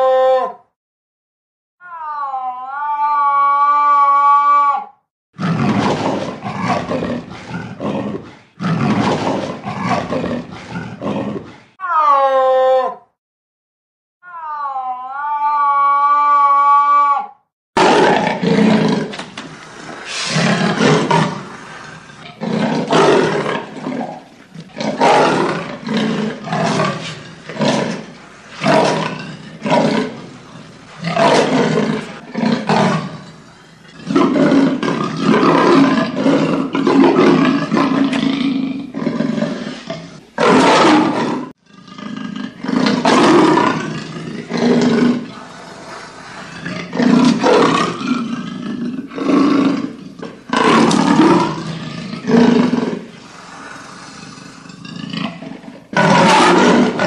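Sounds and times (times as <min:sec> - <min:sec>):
leopard roaring in rasping grunts: 0:05.4 - 0:11.8, 0:17.8 - 0:57.0.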